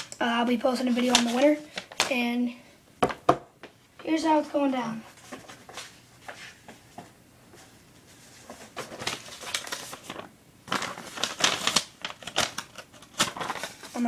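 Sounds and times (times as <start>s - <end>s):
paper rustling and tapping: 0.8s - 2.2s, 8.3s - 14.0s.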